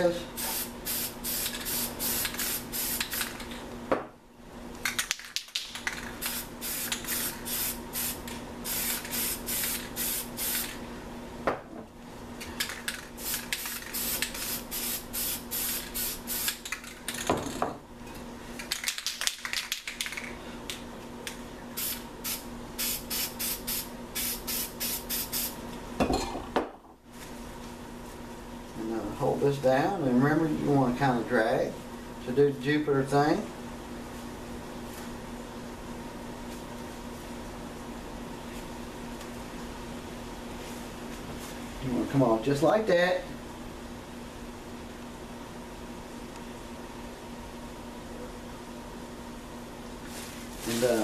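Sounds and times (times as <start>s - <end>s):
spray paint cans hissing: 0.4s - 3.5s, 5.2s - 10.8s, 12.8s - 16.8s, 21.8s - 25.5s.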